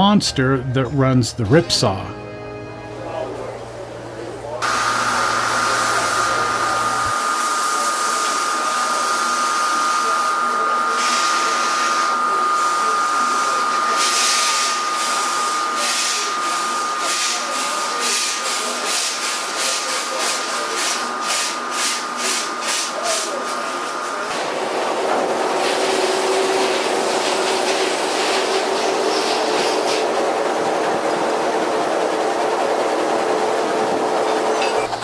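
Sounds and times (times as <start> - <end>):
steam hissing with high tone: 4.6 - 30.5.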